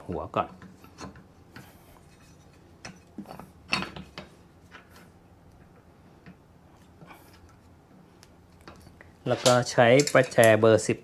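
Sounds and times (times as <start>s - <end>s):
metal clicks and knocks: 9.4s - 10.6s.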